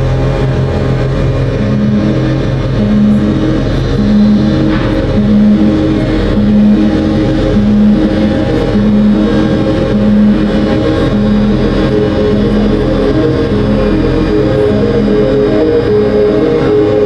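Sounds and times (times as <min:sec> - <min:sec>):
deep synthesizer drone: 0:00.0 - 0:17.0
repeating low synth tones: 0:00.0 - 0:17.0.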